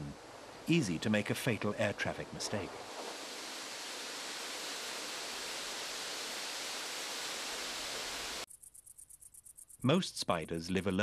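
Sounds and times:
waterfall spray rushing: 2.5s - 8.5s.

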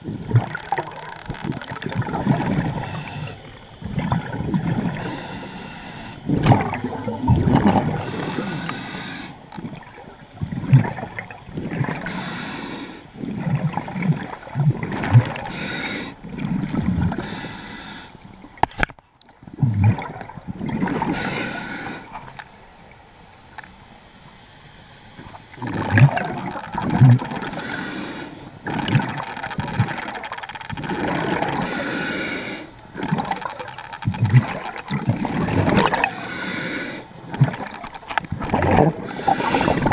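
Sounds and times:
exhale bubbling gurgle: 0.0s - 18.7s, 19.4s - 22.3s, 25.2s - 39.9s
regulator inhale hiss: 2.7s - 3.8s, 4.9s - 6.3s, 7.9s - 9.5s, 12.0s - 13.2s, 15.4s - 16.2s, 17.1s - 18.3s, 21.1s - 22.3s, 27.5s - 28.6s, 31.6s - 32.8s, 36.0s - 37.2s, 39.0s - 39.9s.

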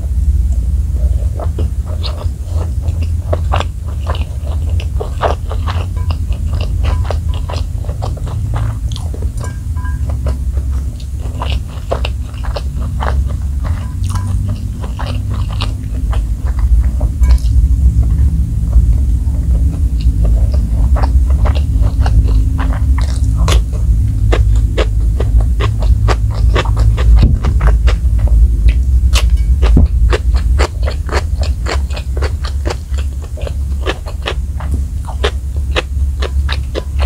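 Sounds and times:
steady low rumble: 0.0s - 37.0s
crisp chewing crunches: 1.0s - 37.0s.

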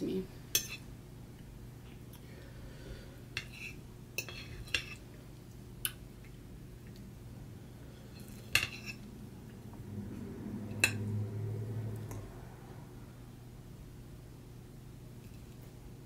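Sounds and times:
low hum: 5.4s - 16.0s.

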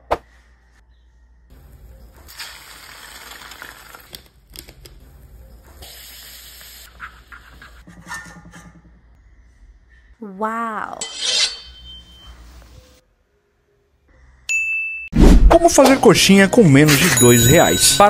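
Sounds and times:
egg and bread sizzling: 1.8s - 7.8s.

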